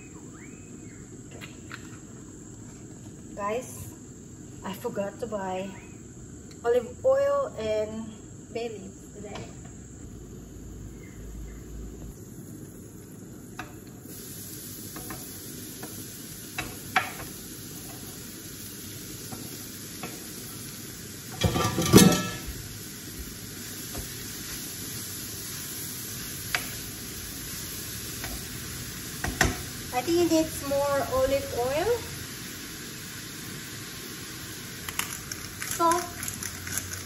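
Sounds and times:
food sizzling in oil: 9.0s - 37.0s
utensils knocking on pot: 21.4s - 22.6s.

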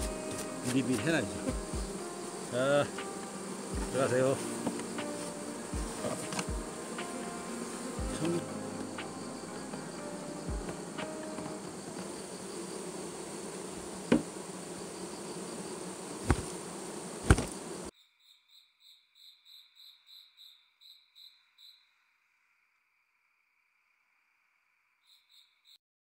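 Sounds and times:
honeybees buzzing: 0.0s - 17.9s
sharp knocks: 14.1s - 14.3s.

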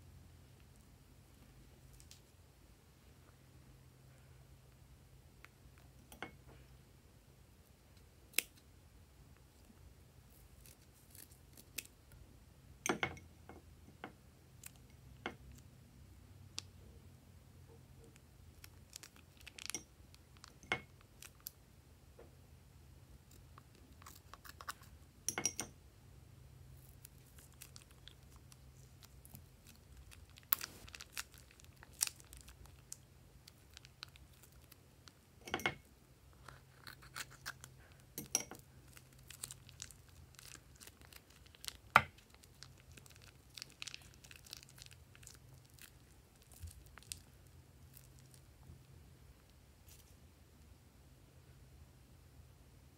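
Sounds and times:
faint low hum: 0.0s - 52.9s
plastic piping bag crinkling: 9.6s - 12.1s, 18.1s - 21.6s, 26.7s - 35.2s, 36.3s - 48.6s.

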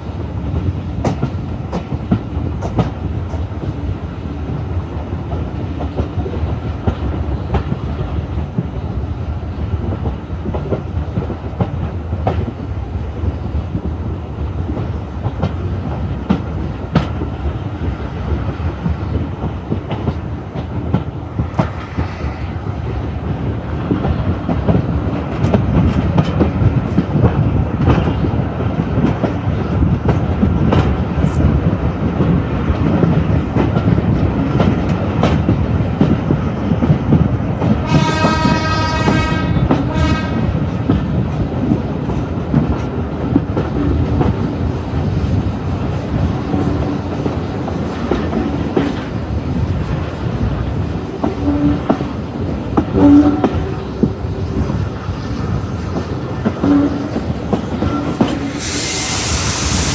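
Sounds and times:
train wheels clattering over rails: 0.0s - 59.9s
steam whistle blasts: 37.9s - 40.3s, 57.8s - 59.9s.

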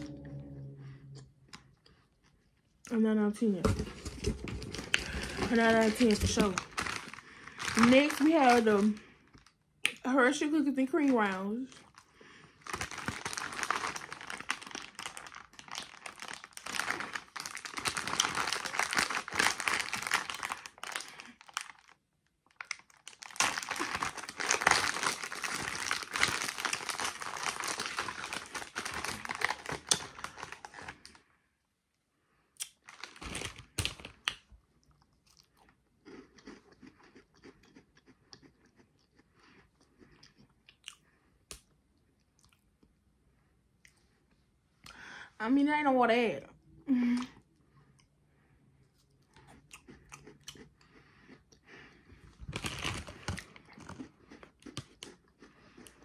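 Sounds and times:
plastic wrapper crinkling and tearing: 3.9s - 9.6s, 11.0s - 31.2s, 32.6s - 34.5s, 52.3s - 55.2s
cookie crunching and chewing: 4.0s - 31.3s, 32.6s - 43.0s, 48.8s - 56.0s.

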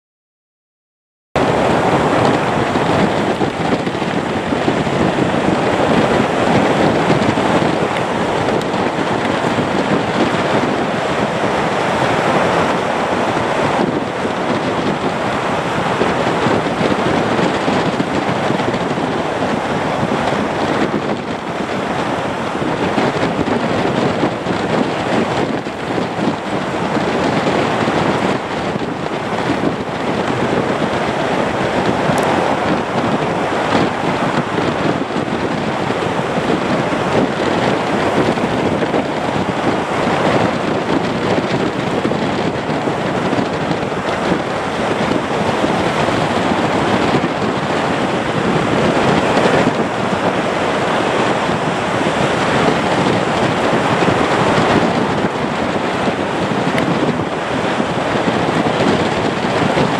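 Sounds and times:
jet engines landing: 1.4s - 59.9s
wind noise on microphone: 1.4s - 59.9s.

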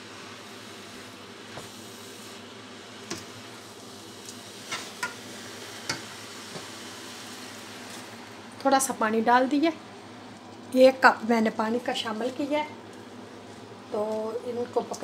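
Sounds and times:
food hissing in pan: 0.0s - 8.5s.

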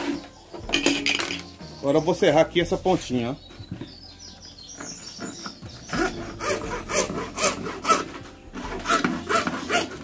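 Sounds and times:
hacksaw cutting plastic pipe: 5.9s - 10.0s.

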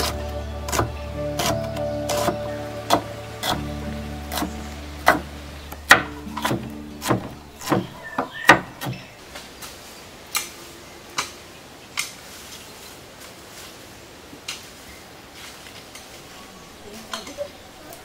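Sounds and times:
background music: 0.0s - 8.5s
knife chopping on wooden board: 4.3s - 5.3s, 5.9s - 9.0s.

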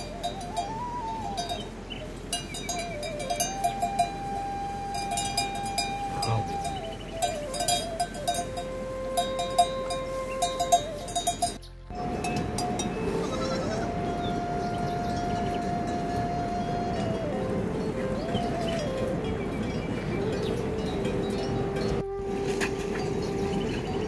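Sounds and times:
animal bells clinking: 0.0s - 13.9s, 18.6s - 22.0s, 22.6s - 24.0s
faint wavering tone: 0.0s - 24.0s.

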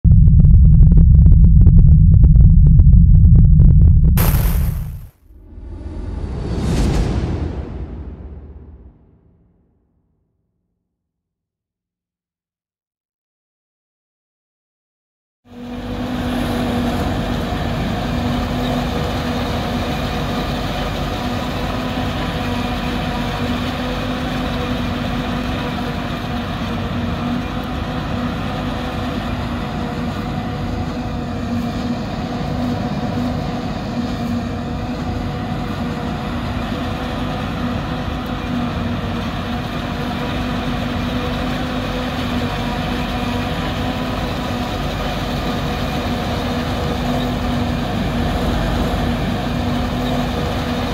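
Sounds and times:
even rumbling noise: 0.0s - 9.4s.

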